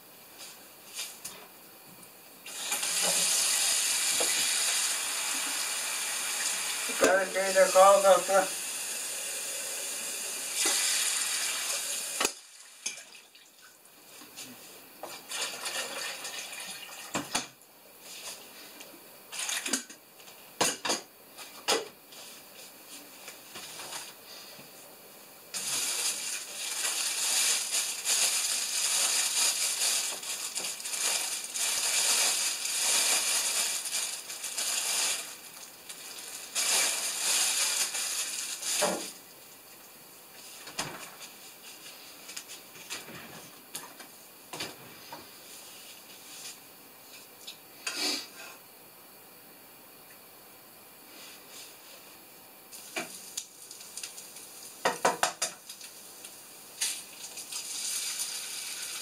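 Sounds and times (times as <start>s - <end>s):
plastic package crinkling: 25.6s - 38.8s.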